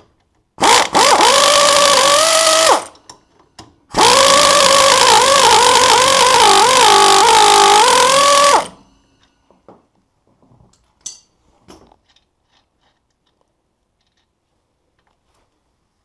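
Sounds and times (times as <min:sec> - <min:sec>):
air ratchet whirring: 0:00.6 - 0:03.1, 0:03.9 - 0:08.8
faint metallic clicks and knocks: 0:09.2 - 0:15.3.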